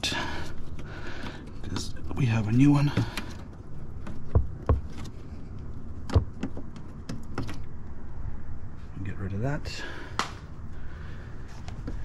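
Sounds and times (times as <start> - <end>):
low steady rumble: 0.0 - 12.0
sharp clicks and knocks: 2.9 - 5.2, 6.0 - 7.7.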